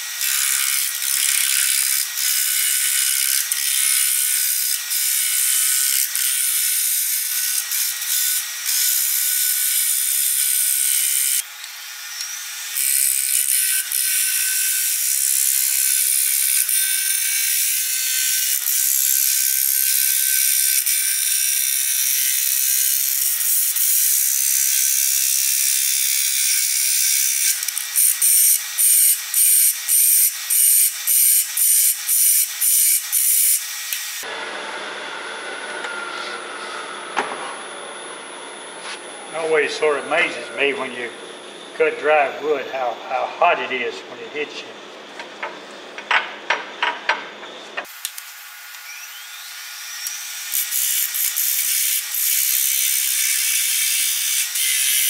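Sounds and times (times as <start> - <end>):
gouge cutting wood on lathe: 0.0 - 11.4.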